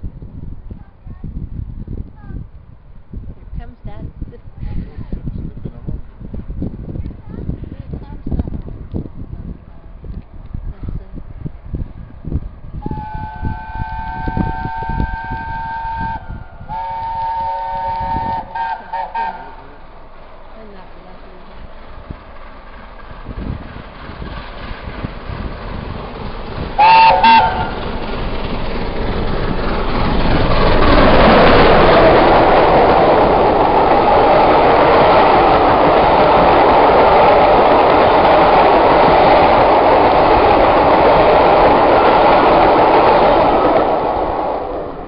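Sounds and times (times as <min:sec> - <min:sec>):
train passing over rails: 0:00.0 - 0:45.0
steam locomotive whistle: 0:12.8 - 0:19.6, 0:26.8 - 0:27.8.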